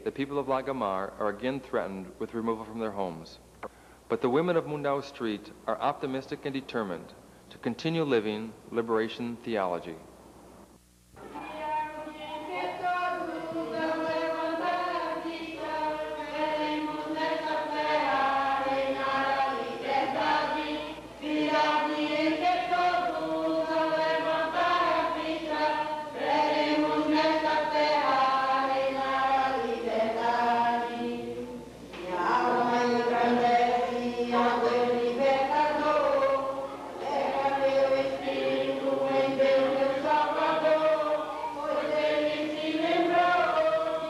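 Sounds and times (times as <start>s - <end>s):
group of people singing: 11.2s - 44.0s.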